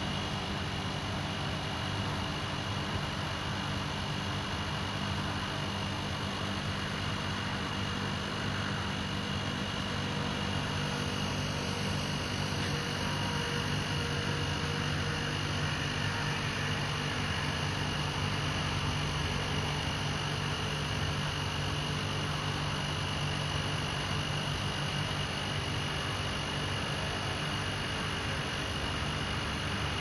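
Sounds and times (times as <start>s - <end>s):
constant high whine: 0.0s - 30.0s
mechanical hum and hiss: 0.0s - 30.0s.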